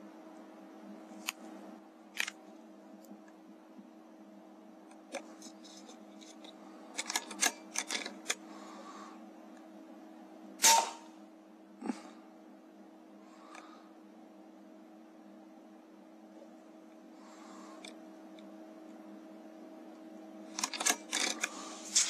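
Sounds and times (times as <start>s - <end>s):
faint steady hum: 0.0s - 22.0s
air rifle shot: 10.6s - 11.1s.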